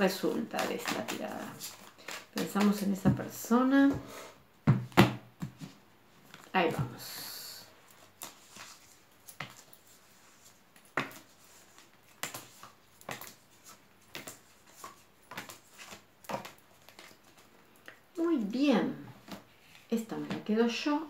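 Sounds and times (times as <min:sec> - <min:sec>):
card deck rustling: 0:00.1 - 0:03.5, 0:07.9 - 0:18.0.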